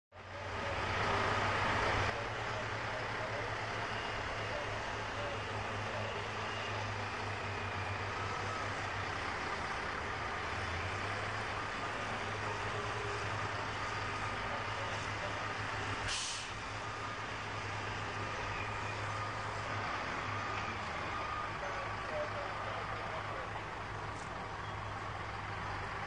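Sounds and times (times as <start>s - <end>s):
diesel engine running: 0.1s - 26.0s
sharp burst of hiss: 16.1s - 16.6s.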